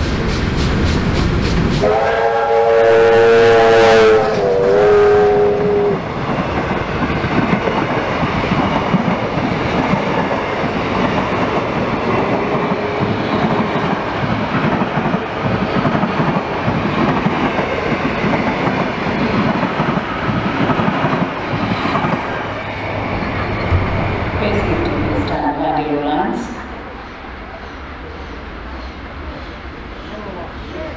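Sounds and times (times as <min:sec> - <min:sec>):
train wheels clattering on track: 0:00.0 - 0:02.4, 0:04.0 - 0:25.9
locomotive whistle: 0:01.8 - 0:06.0.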